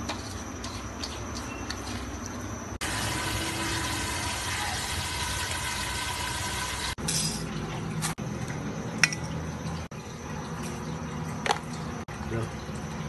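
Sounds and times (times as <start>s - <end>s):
pot hissing on stove: 2.8s - 7.0s.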